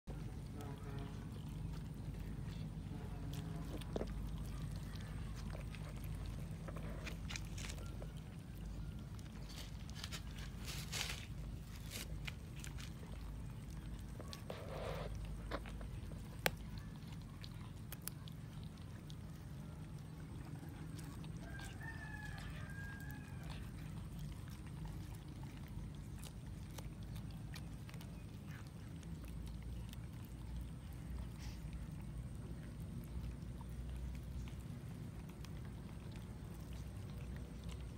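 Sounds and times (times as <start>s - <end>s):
steady low rumble: 0.0s - 22.6s
cats chewing and tearing: 0.0s - 37.9s.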